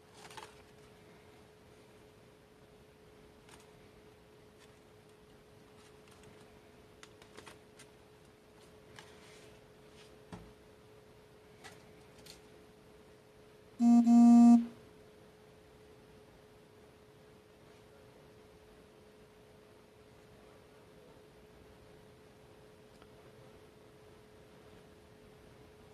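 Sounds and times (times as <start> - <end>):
paper rustling and tapping: 0.0 - 0.8, 5.8 - 10.5
faint steady hum: 0.0 - 25.9.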